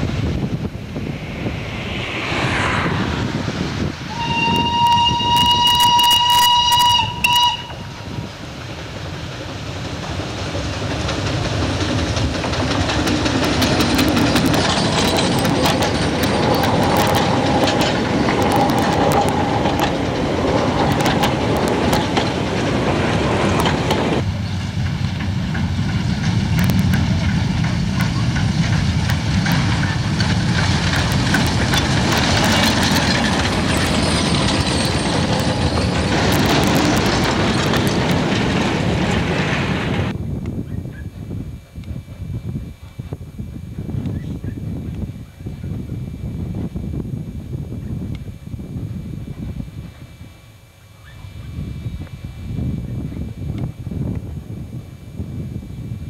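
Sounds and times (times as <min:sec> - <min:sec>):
train horn blast: 0:04.1 - 0:08.1
train wheels clattering: 0:08.5 - 0:40.1.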